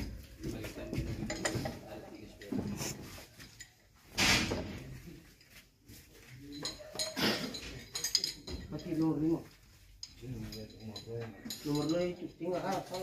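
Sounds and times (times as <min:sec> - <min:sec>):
metal tools knocking and clinking: 0:01.0 - 0:04.9, 0:06.5 - 0:09.3, 0:10.0 - 0:13.0.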